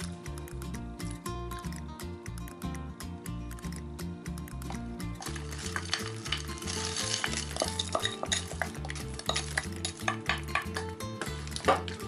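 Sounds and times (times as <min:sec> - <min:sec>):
background music with low beat: 0:00.0 - 0:12.0
frozen peas clicking into pot: 0:04.5 - 0:12.0.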